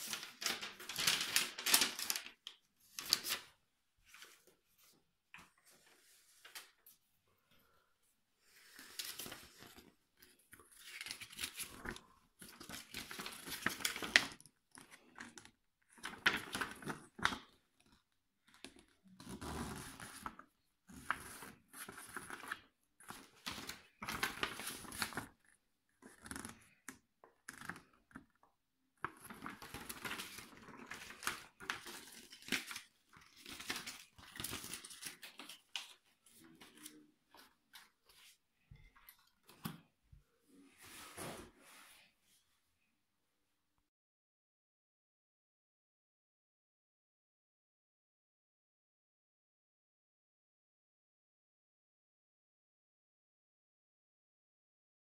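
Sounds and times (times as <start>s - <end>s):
paper rustling and crinkling: 0.0s - 7.1s, 8.5s - 28.3s, 29.0s - 39.8s.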